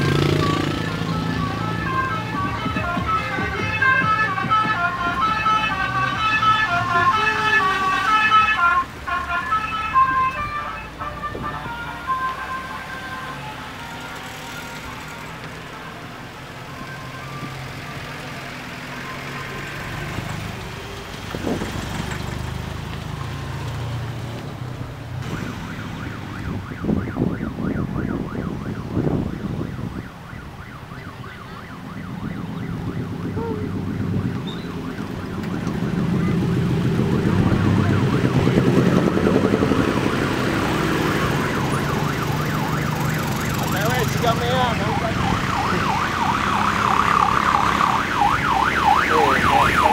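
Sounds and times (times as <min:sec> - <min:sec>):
motor scooters passing: 0:00.0 - 0:29.3, 0:31.0 - 0:49.9
van passing: 0:00.0 - 0:49.9
warbling siren-like tone: 0:25.3 - 0:49.9.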